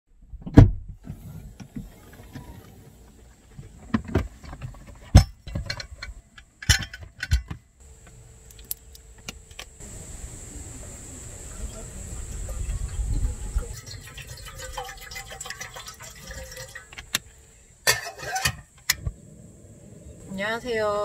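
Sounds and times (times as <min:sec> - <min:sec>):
cookware knocking set down: 0:17.9 - 0:18.7.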